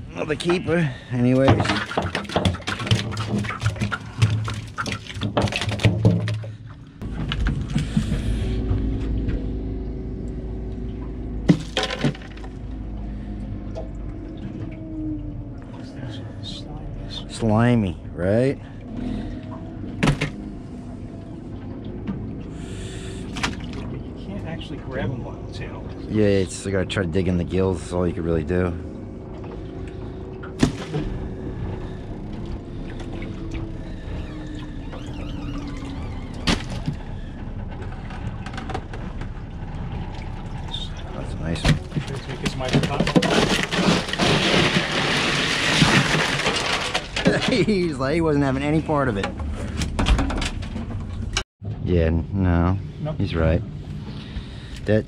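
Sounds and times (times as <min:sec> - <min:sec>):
boat engine rumble: 0:00.0 - 0:55.0
steady low hum: 0:06.2 - 0:45.2
ice rattling and clinking: 0:11.5 - 0:12.5, 0:42.0 - 0:47.8.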